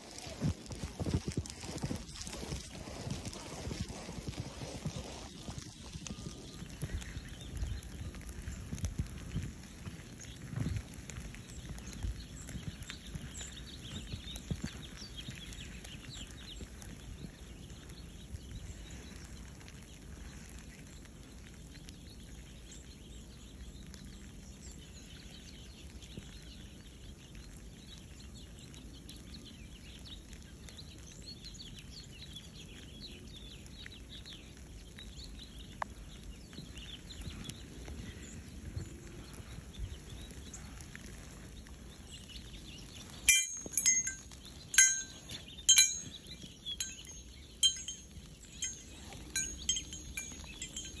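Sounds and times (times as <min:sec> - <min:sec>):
small birds chirping: 0:00.0 - 0:51.0
tubular wind chime ringing: 0:43.3 - 0:51.0.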